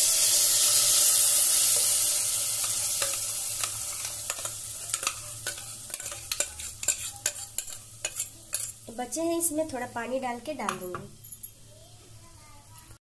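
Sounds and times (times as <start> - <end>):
paste sizzling in hot pan: 0.0 - 10.7
spatula clinking against steel pan: 2.6 - 8.8.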